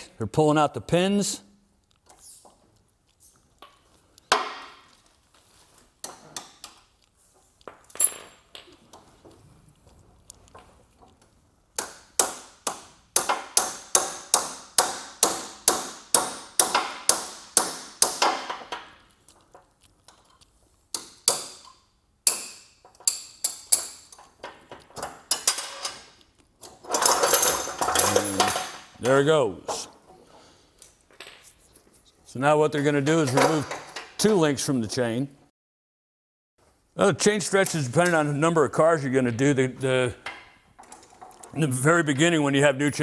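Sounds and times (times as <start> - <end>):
tools clinking on chain: 7.9 - 8.5, 26.9 - 28.8.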